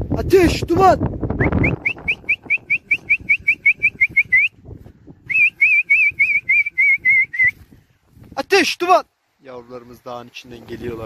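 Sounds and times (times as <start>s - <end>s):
person whistling rapid notes: 1.4s - 4.6s, 5.2s - 7.6s.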